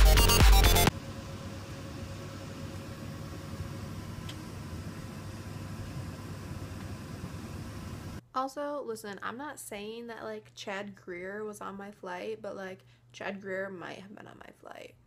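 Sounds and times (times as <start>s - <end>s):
airliner cabin noise: 0.9s - 8.2s
faint steady hum: 0.9s - 15.0s.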